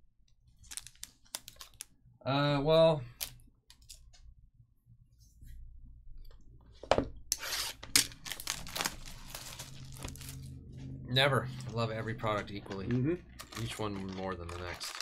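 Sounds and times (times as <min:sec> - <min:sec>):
plastic shrink wrap tearing: 0:07.5 - 0:10.5, 0:11.6 - 0:15.0.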